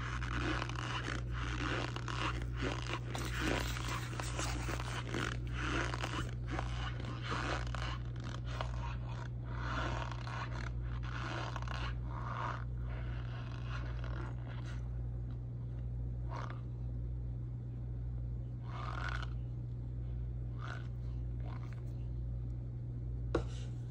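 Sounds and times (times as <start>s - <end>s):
spoon scraping dry powder: 0.0s - 14.8s
low hum: 0.0s - 23.9s.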